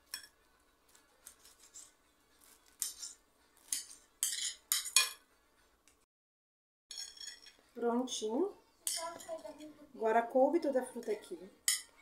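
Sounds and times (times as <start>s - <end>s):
knife scraping plate: 1.2s - 5.2s.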